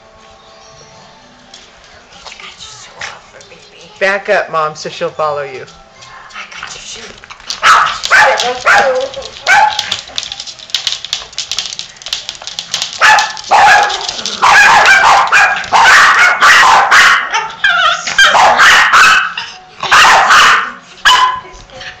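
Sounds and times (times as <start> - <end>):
small dogs barking high-pitched: 7.6 - 10.0, 12.9 - 21.5.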